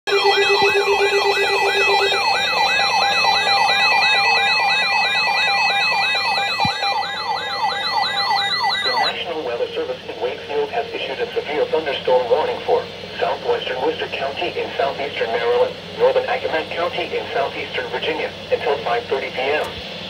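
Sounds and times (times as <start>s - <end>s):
weather radio alarms: 0.1s - 13.4s
broadcast voice: 8.8s - 19.7s.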